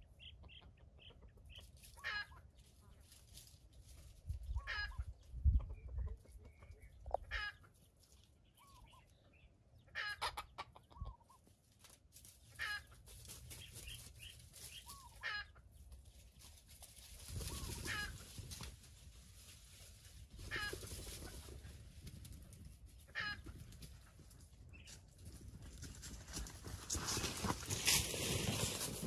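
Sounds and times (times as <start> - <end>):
chicken clucking: 0.0 - 3.2, 4.4 - 11.6, 12.4 - 15.8, 17.4 - 18.7, 20.2 - 25.1.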